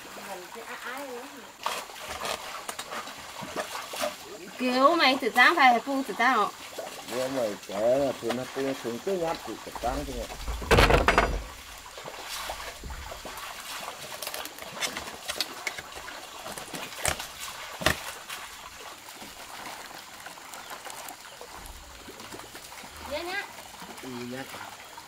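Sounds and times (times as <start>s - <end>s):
water trickling and splashing: 0.0s - 25.0s
sharp knocks: 10.3s - 11.7s.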